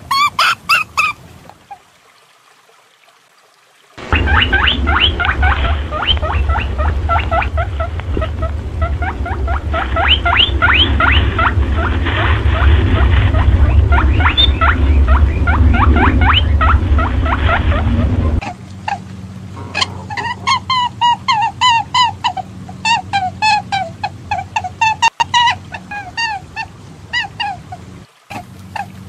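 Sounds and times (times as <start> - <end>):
upward sweeping high squeaks: 4.0 - 18.4
steady low hum: 4.0 - 24.9.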